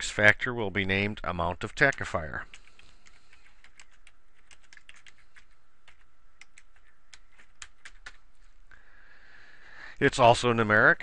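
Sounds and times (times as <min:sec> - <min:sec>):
keyboard key clicks: 0:01.9 - 0:08.2.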